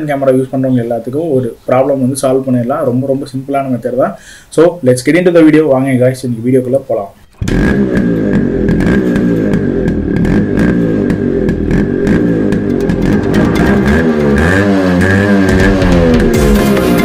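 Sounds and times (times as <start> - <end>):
heavy distorted electric guitar music: 7.3 - 17.0.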